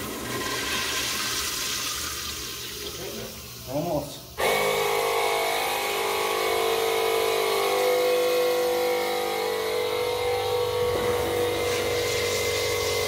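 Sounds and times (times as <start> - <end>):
toilet flushing: 0.0 - 5.1, 10.8 - 13.0.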